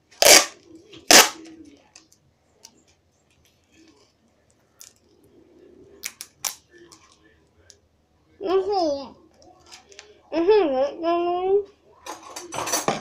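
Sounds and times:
duct tape ripping: 0.2s - 1.4s.

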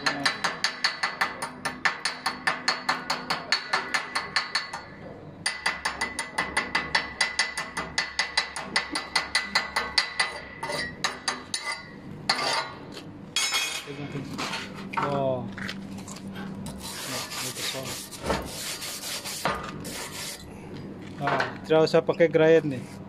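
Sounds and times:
chipping hammer tapping metal: 0.0s - 12.4s.

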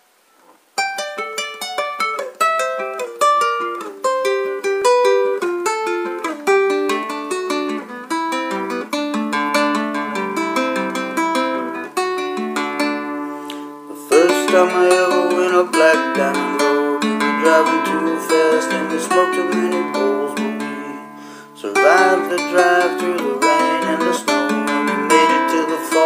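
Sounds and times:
classical guitar picking: 0.8s - 26.0s.

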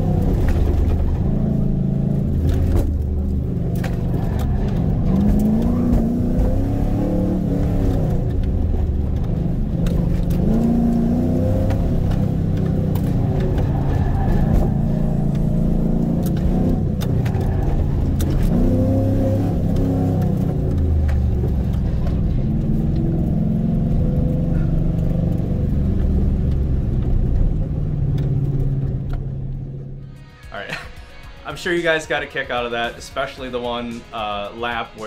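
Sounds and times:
car engine revving hard: 0.0s - 26.7s.

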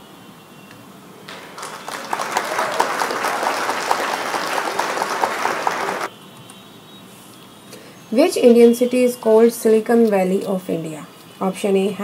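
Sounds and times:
crowd applause: 1.3s - 6.1s.

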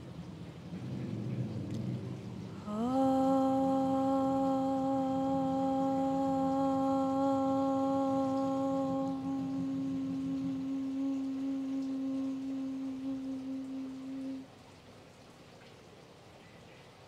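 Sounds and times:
woman chanting om: 2.4s - 14.6s.

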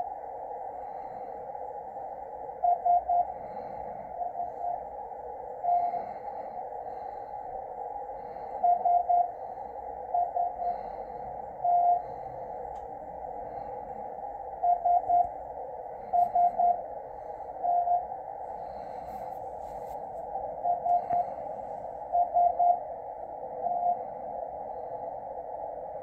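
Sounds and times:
morse code tone: 8.6s - 9.4s, 11.6s - 12.1s, 14.6s - 15.3s, 16.1s - 16.8s, 17.6s - 18.1s, 20.6s - 21.2s.

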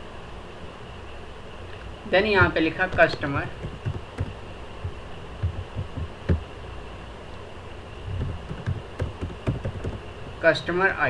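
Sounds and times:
faint steady hum: 0.0s - 11.0s
computer keyboard typing: 2.4s - 6.4s, 8.1s - 10.5s.

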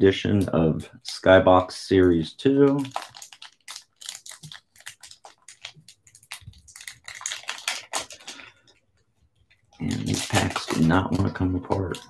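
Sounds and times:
plastic wrapper crinkling: 1.0s - 12.0s.

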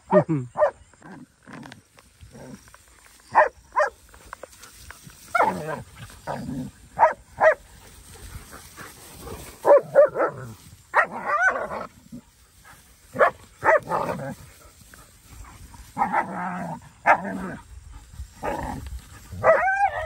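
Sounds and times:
dogs barking: 3.3s - 4.0s, 6.9s - 8.9s, 9.6s - 12.0s, 13.1s - 14.4s, 19.3s - 20.0s.

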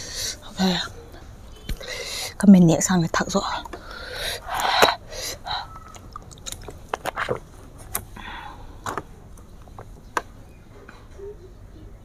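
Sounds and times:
breathy exhale: 3.8s - 5.8s, 8.2s - 8.8s
wet mouth clicks and smacks: 5.9s - 7.5s.

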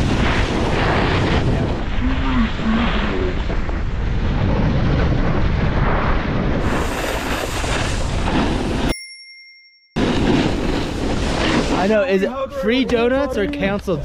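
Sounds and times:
wind rumbling on microphone: 0.0s - 8.9s.

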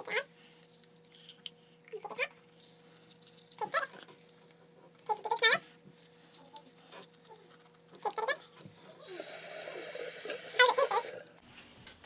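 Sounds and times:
water running into basin: 9.0s - 11.4s.

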